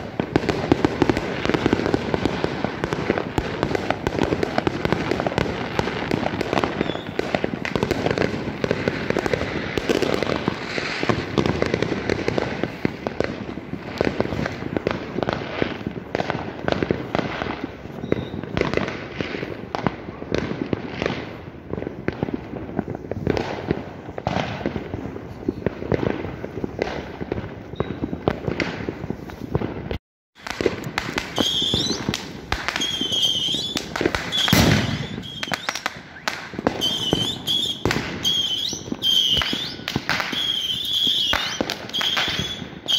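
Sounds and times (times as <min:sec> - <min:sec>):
fireworks and firecrackers banging: 0:00.0 - 0:42.9
high wavering whistles: 0:32.8 - 0:42.9.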